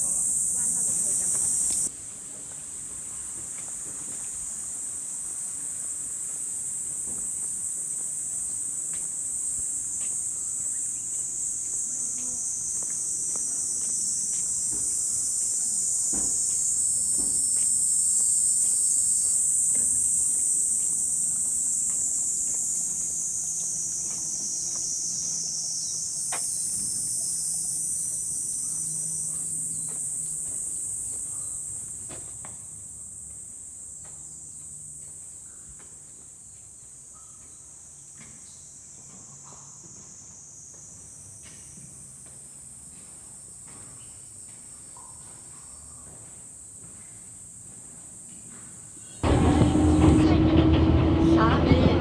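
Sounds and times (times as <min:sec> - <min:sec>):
cicadas buzzing: 0:00.0 - 0:52.0.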